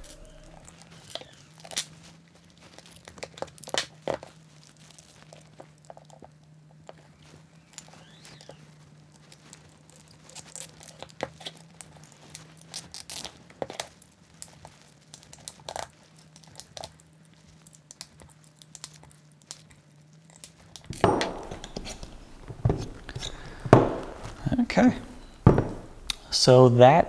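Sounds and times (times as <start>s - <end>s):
metal rubbing and scraping: 0.0s - 0.8s
metal parts clicking and tapping: 20.3s - 26.2s.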